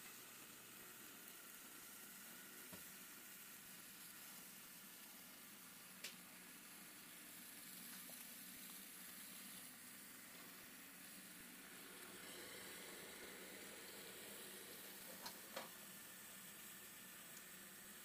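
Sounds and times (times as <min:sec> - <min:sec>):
faint steady hiss: 0:00.0 - 0:18.0
light ticks: 0:06.0 - 0:06.2.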